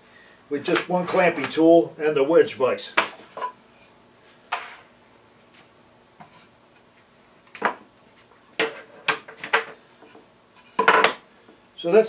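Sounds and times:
wood and metal knocks on workbench: 10.8 - 11.2.

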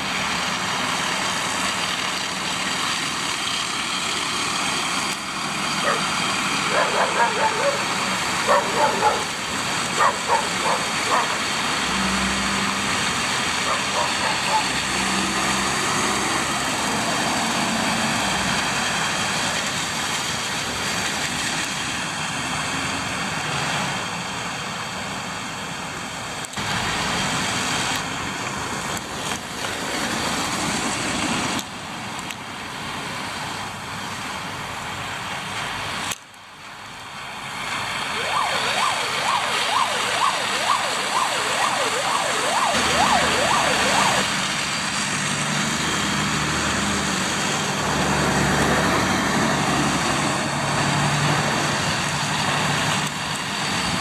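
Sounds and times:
tyres hissing on wet snow: 0.0 - 38.2
trucks and cars passing: 0.0 - 54.0
fast wavering siren: 13.6 - 14.9, 38.0 - 44.5.

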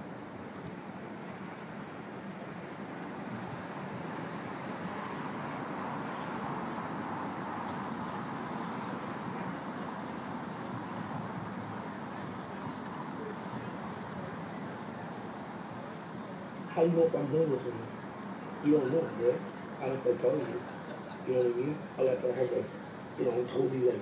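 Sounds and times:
city traffic noise: 0.0 - 24.0.

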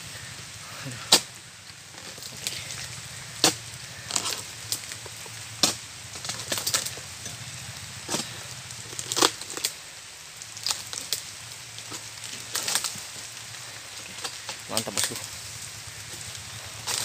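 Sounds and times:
rain hiss: 0.0 - 17.0
pole chopping palm stalks: 0.9 - 1.4, 2.0 - 7.1, 16.1 - 17.0.

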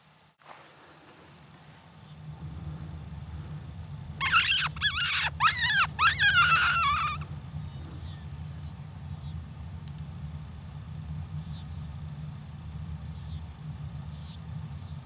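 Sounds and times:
predator call cries: 4.2 - 7.3.

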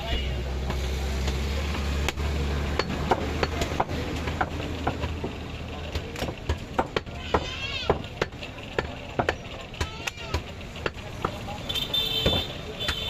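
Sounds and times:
cleaver chopping on wooden block: 0.7 - 11.5, 12.2 - 13.0.

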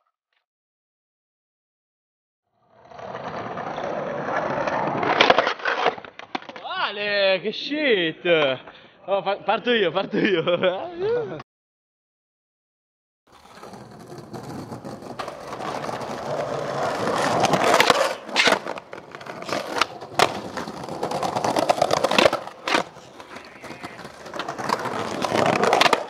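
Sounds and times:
skateboard wheels rolling on stone: 2.7 - 6.6, 13.3 - 26.0
skateboard clacking on stone: 13.4 - 26.0.

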